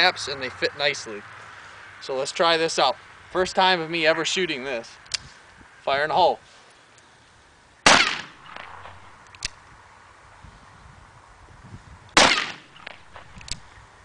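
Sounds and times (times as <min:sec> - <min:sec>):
revolver shots with echo: 0:07.9 - 0:09.0, 0:12.2 - 0:13.2.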